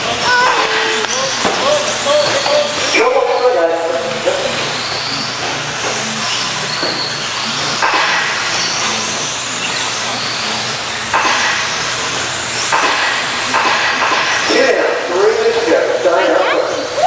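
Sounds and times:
rc trucks racing on dirt: 0.0 - 13.5
high electric motor whines: 0.0 - 17.0.

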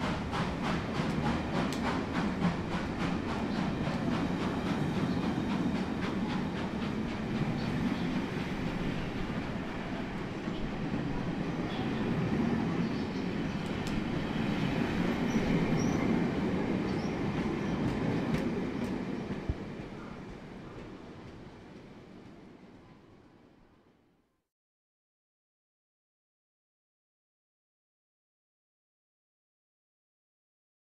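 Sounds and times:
train wheels rolling on rails: 0.0 - 23.6.

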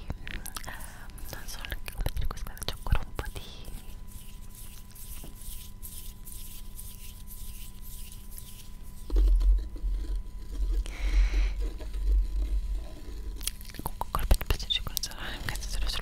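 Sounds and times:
soft whispering: 0.2 - 4.0, 13.6 - 16.0.

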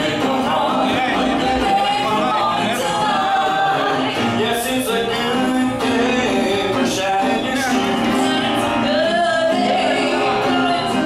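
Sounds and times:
singers with instrumental backing: 0.0 - 11.0.

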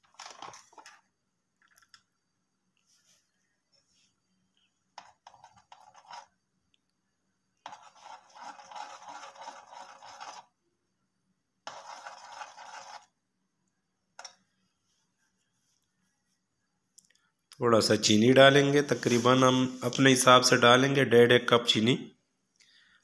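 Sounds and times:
metal spatula scraping a pot: 7.6 - 10.5, 11.7 - 13.1.

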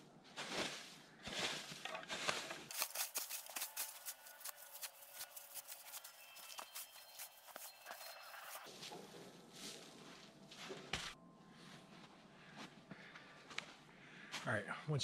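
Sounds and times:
snow shovel scraping wet snow: 1.4 - 8.3.

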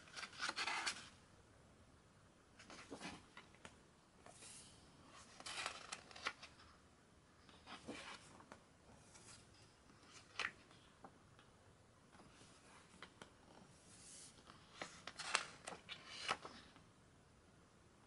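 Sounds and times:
book pages turning: 0.0 - 1.2, 2.6 - 6.7, 7.5 - 10.7, 13.9 - 16.7.

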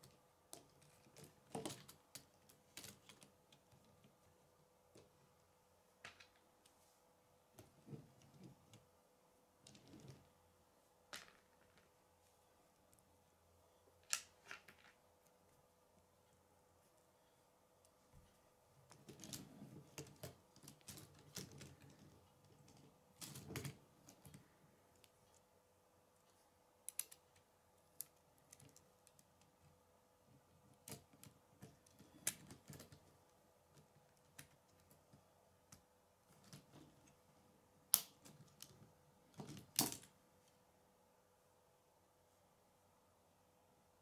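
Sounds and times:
plastic pieces clicking together: 26.9 - 29.2.

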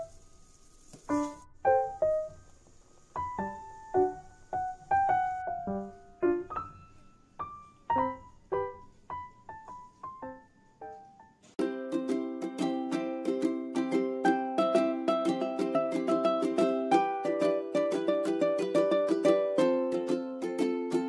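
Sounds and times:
slow piano melody: 0.0 - 21.0.

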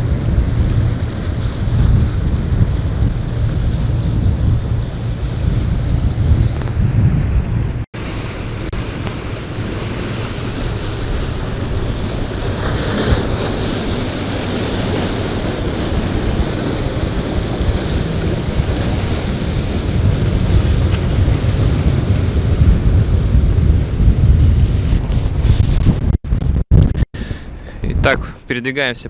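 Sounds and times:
loud water splash: 0.0 - 26.0
wind buffeting microphone: 0.0 - 28.5
waves breaking on rocks: 8.0 - 25.6.

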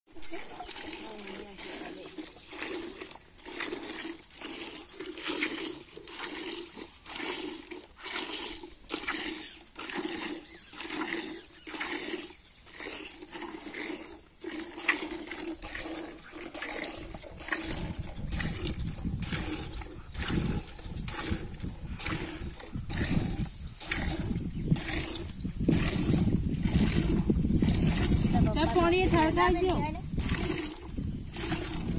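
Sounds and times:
milk squirting into pail: 0.2 - 31.9.

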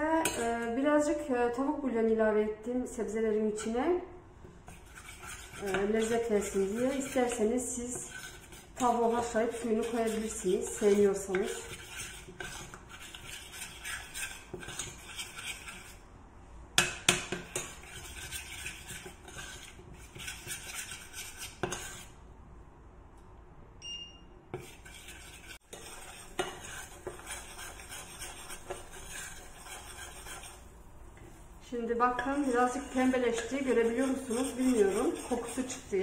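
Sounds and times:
metal utensil scraping saucepan: 0.2 - 0.8, 4.7 - 16.0, 17.1 - 22.2, 24.6 - 30.7, 32.0 - 36.0
short beep: 23.8 - 24.4.

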